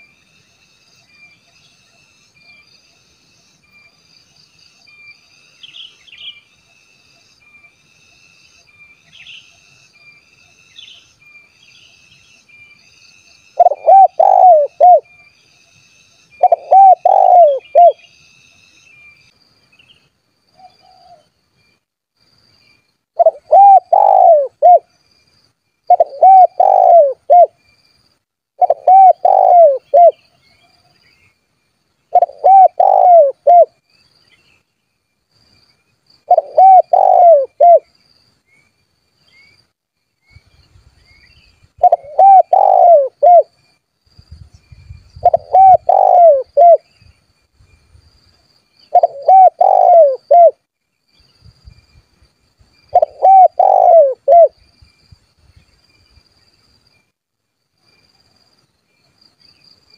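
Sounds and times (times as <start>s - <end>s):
dove cooing: 13.6s - 15.1s, 16.4s - 18.0s, 23.2s - 24.9s, 25.9s - 27.6s, 28.6s - 30.2s, 32.1s - 33.7s, 36.3s - 37.9s, 41.8s - 43.5s, 45.2s - 46.9s, 48.9s - 50.6s, 52.9s - 54.5s.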